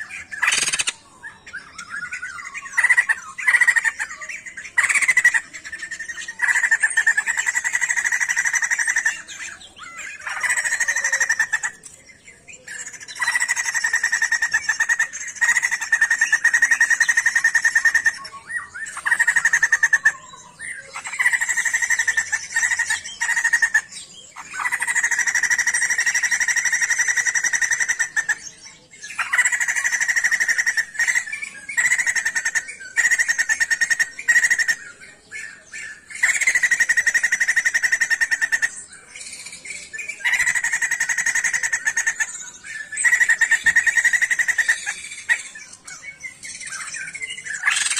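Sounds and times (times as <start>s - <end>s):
bird trilling: 0.0s - 47.9s.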